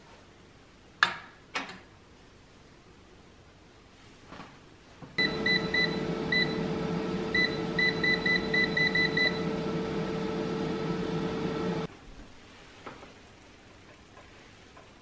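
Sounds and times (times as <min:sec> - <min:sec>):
air fryer fan hum: 0:05.2 - 0:11.9.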